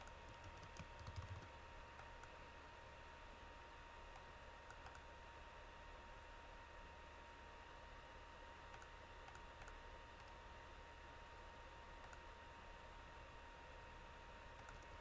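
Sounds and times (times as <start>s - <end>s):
faint clicks: 12.0s - 12.2s, 14.6s - 14.9s.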